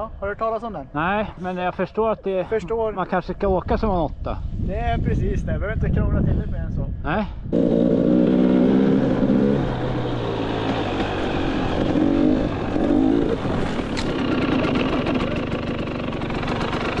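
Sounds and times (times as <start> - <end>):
motorcycle engine revving: 7.5 - 17.0.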